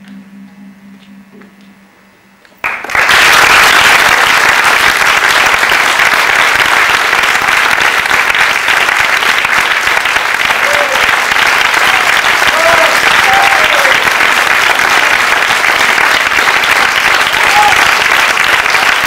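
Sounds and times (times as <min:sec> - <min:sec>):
faint low hum: 0:00.0 - 0:02.9
audience applauding: 0:02.6 - 0:19.0.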